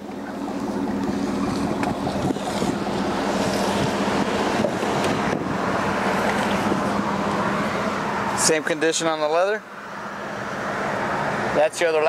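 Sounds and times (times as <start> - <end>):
wind buffeting microphone: 0.0 - 8.3.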